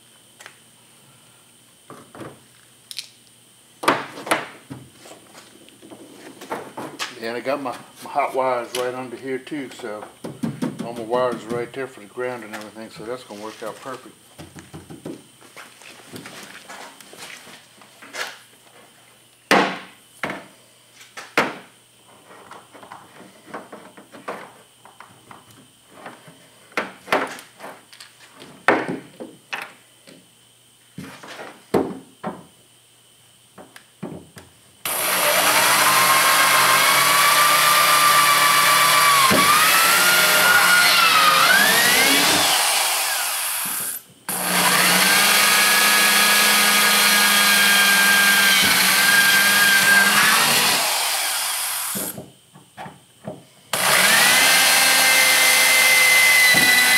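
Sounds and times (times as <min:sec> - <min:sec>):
electric drill whining: 0:34.9 - 0:52.2, 0:53.7 - 0:56.9.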